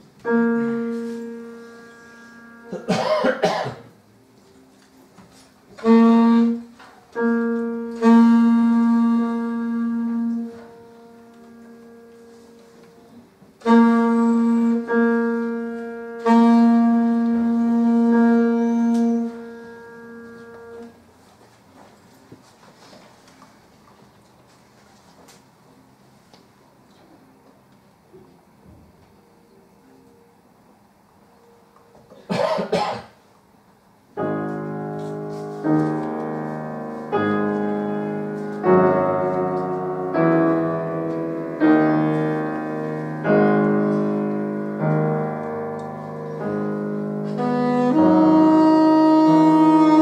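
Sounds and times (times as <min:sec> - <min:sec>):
piano accompaniment: 0:00.0 - 0:21.2, 0:33.9 - 0:50.0
alto saxophone playing low notes: 0:00.2 - 0:03.0, 0:05.7 - 0:21.0, 0:34.2 - 0:50.0.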